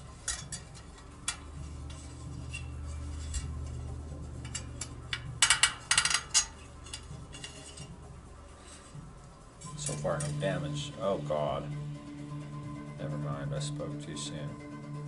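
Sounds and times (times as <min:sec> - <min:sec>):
bicycle spokes clicking and clinking: 0:00.0 - 0:09.0.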